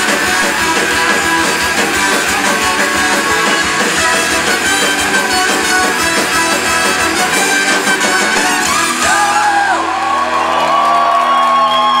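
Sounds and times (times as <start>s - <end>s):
drum beat: 0.0s - 9.4s
ringing guitar chords: 0.0s - 10.4s
live rock band playing: 0.0s - 12.0s
audience shouting and whooping: 8.2s - 12.0s.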